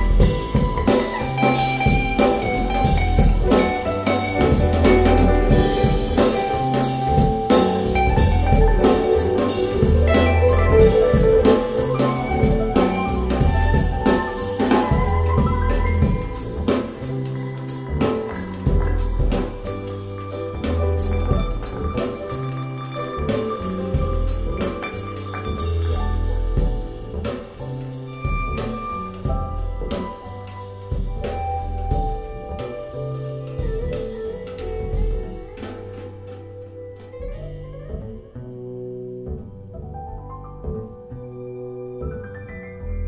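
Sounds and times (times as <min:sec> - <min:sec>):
drums and cymbals: 0:00.0 - 0:37.5
jazz-pop band over speakers: 0:00.0 - 0:43.0.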